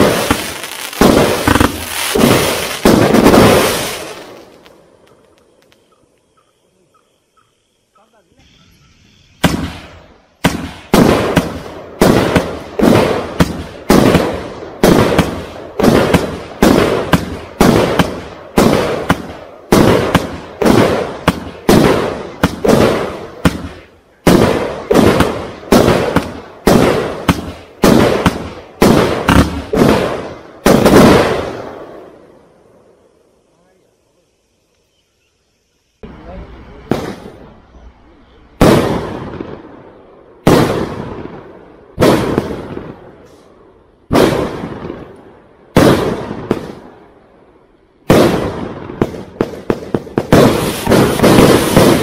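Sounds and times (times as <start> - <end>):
firework cake bangs: 0.0 - 4.2, 9.4 - 31.6, 42.0 - 43.0, 48.1 - 52.0.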